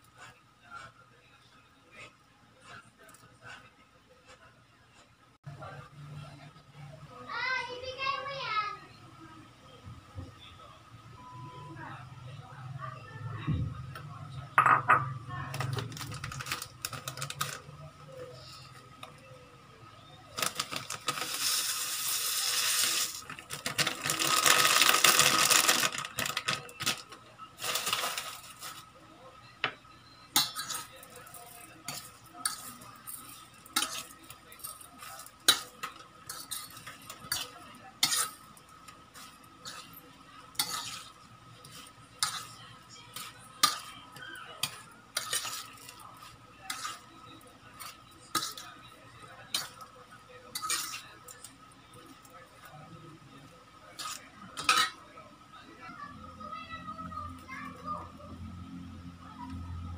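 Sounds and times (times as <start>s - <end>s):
fork scraping a metal bowl: 31.9s - 38.5s, 39.1s - 44.0s, 44.6s - 48.7s, 50.5s - 51.1s, 54.0s - 55.0s.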